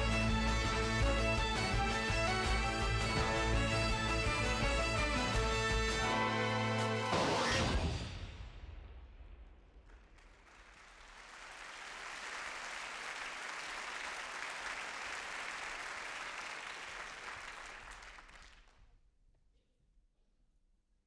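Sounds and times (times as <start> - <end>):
audience applause: 0.0 - 7.2, 9.9 - 18.8.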